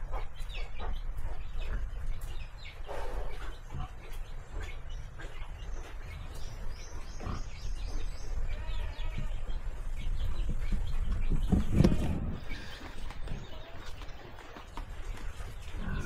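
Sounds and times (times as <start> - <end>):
pig grunting: 15.6 - 16.0.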